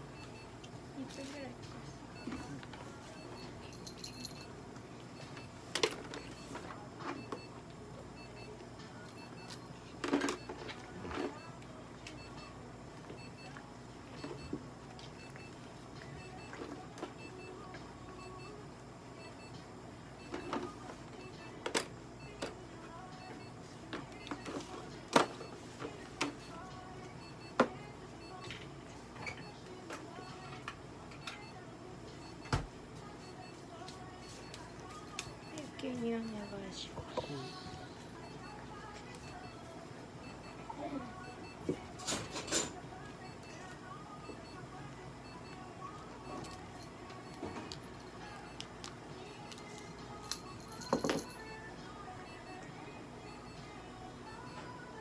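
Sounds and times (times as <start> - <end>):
faint steady hum: 0.0 - 55.0.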